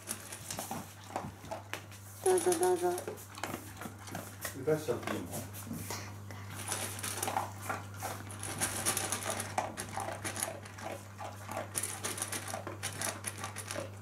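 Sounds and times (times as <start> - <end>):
dog crunching dry kibble: 0.0 - 5.3, 6.5 - 14.0.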